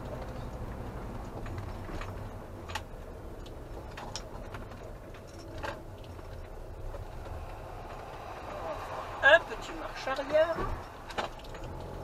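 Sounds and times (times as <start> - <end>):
light clicks and rattles: 0.0 - 8.3
van engine running low: 0.0 - 12.0.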